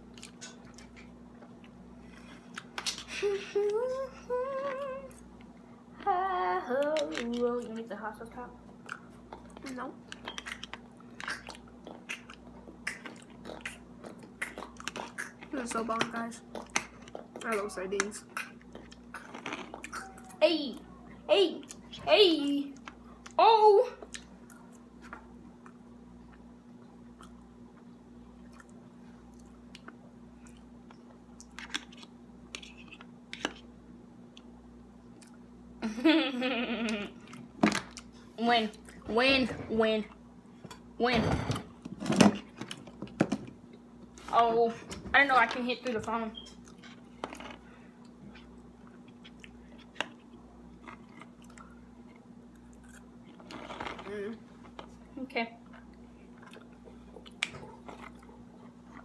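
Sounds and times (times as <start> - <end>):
faint steady hum: 0.0 - 59.0
quiet chewing: 8.7 - 15.7, 16.4 - 22.0, 24.0 - 33.7, 46.4 - 59.0.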